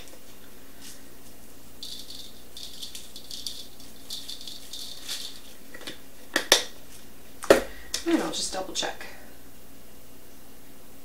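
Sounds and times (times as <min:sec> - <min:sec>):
pepper flakes rattling in shaker: 0:01.8 - 0:05.6.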